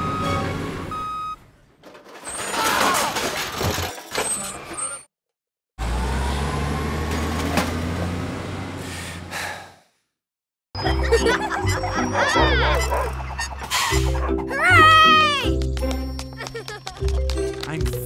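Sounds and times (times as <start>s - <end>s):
truck reversing beeps: 0.0s - 1.4s
truck engine rumble: 0.0s - 2.2s, 5.8s - 9.8s.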